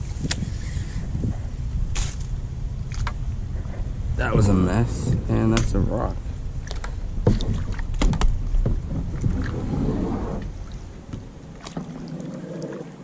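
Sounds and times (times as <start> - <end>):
low rumble: 0.0 - 12.1
paddle knocking against rocks: 6.7 - 9.7.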